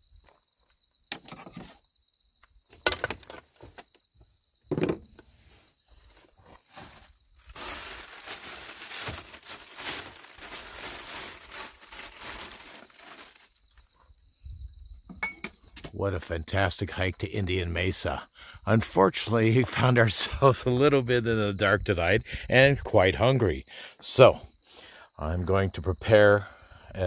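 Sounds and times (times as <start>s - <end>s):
pan set down: 4.7s - 5.2s
plastic bag rustling: 6.0s - 13.6s
cookware knocking and clattering: 15.1s - 15.6s.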